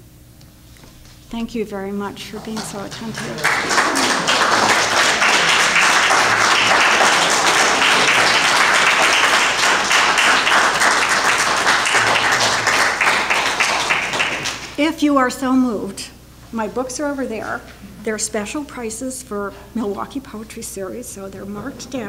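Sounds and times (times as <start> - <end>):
audience applauding: 2.2 - 14.8.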